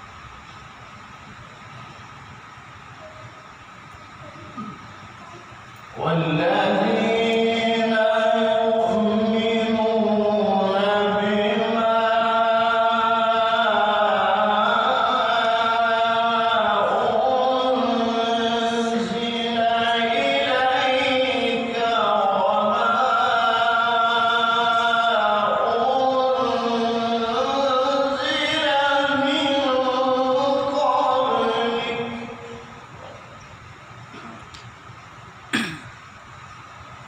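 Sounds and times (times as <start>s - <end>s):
man reciting melodically into microphone: 5.9s - 32.7s.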